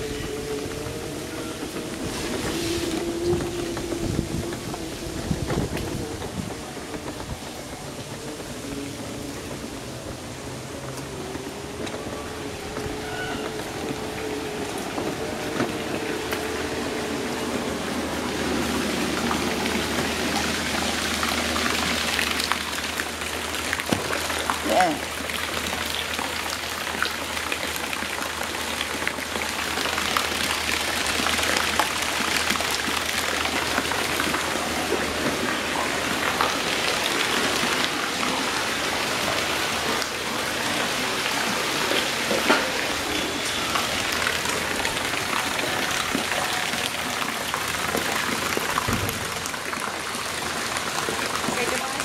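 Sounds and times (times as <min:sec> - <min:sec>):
water pattering on surface: 0:00.0 - 0:52.0
water splashing into pond: 0:10.5 - 0:52.0.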